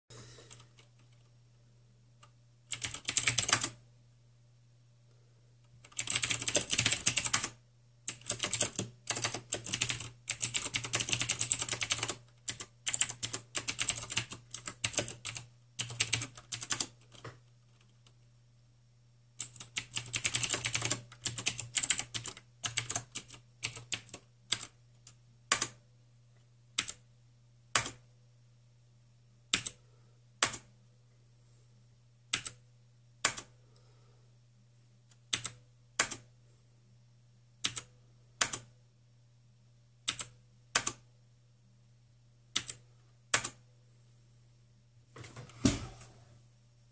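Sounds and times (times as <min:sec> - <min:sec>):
typing on computer keyboard: 0:02.2 - 0:03.8, 0:05.8 - 0:18.2, 0:19.4 - 0:25.8, 0:26.8 - 0:27.0, 0:27.7 - 0:28.0, 0:29.5 - 0:29.8, 0:30.4 - 0:30.7, 0:32.3 - 0:32.6, 0:33.2 - 0:33.6, 0:35.1 - 0:36.3, 0:37.6 - 0:38.7, 0:40.0 - 0:41.0, 0:42.5 - 0:43.6.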